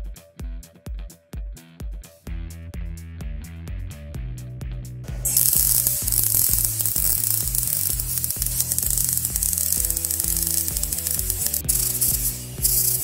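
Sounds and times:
background music with bass line: 0:00.0 - 0:13.0
welding arc crackling: 0:05.3 - 0:13.0.

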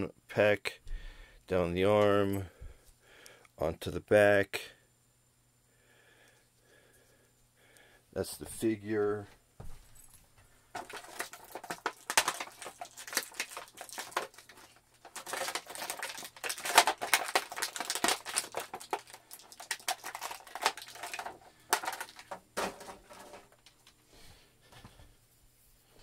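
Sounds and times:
plastic packaging crinkling: 0:10.7 - 0:24.0.

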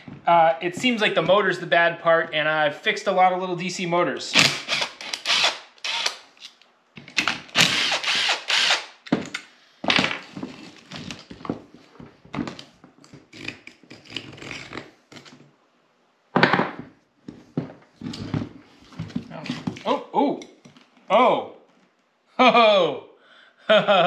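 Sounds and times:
cordless drill bursts: 0:04.4 - 0:06.2, 0:07.6 - 0:09.0.

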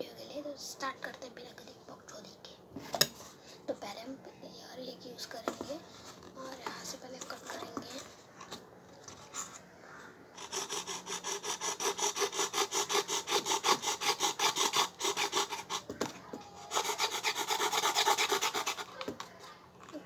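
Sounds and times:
knife sawing through paper cup: 0:10.4 - 0:15.9, 0:16.7 - 0:19.3.

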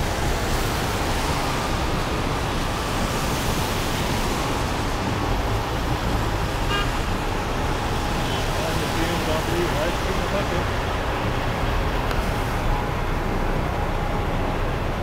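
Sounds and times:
traffic on wet road: 0:00.0 - 0:15.0.

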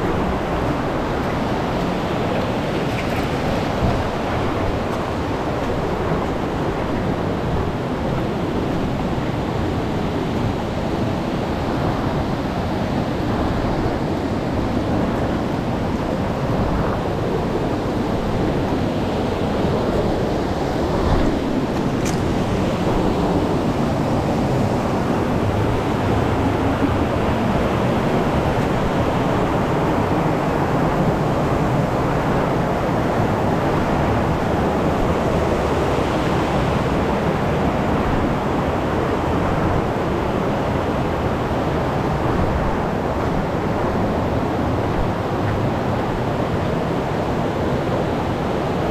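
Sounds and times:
river water rushing over rocks: 0:00.0 - 0:48.9.

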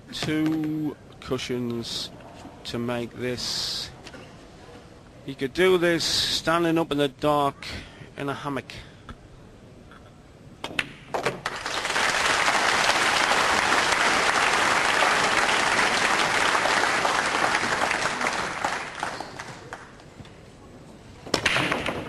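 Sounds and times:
audience applauding: 0:11.4 - 0:20.0.

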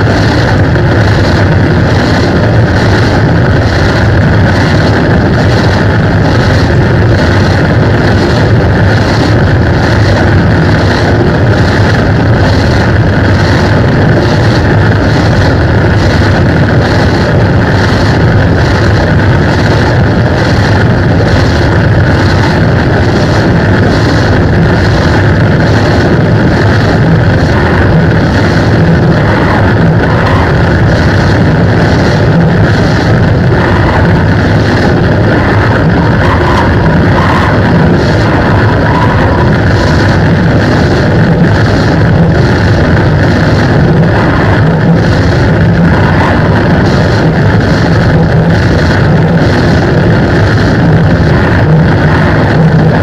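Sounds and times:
distorted electric guitar: 0:00.0 - 0:53.0.

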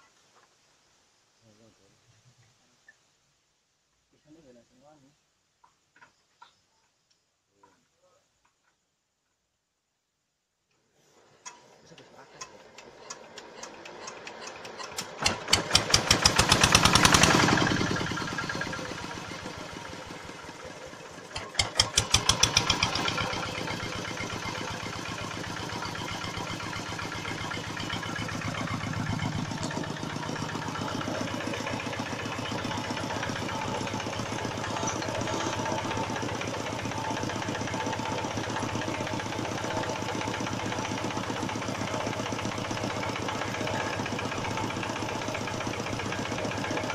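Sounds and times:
stationary engine cranking: 0:11.4 - 0:46.9
stationary engine running: 0:12.8 - 0:46.9.

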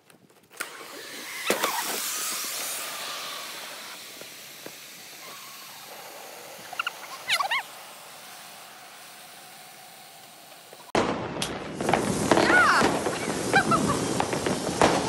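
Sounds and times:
gas hissing into liferaft: 0:00.6 - 0:11.0, 0:11.7 - 0:15.0
high squeaks: 0:05.2 - 0:07.9.

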